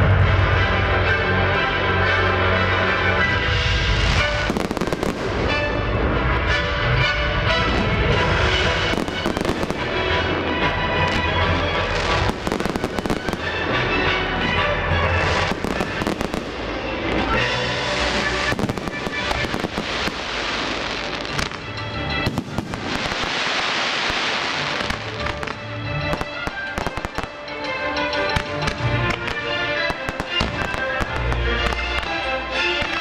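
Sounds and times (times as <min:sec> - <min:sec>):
music playing: 0:00.0 - 0:33.0
firework shells bursting and crackling: 0:04.0 - 0:05.7, 0:07.6 - 0:14.0, 0:15.1 - 0:33.0.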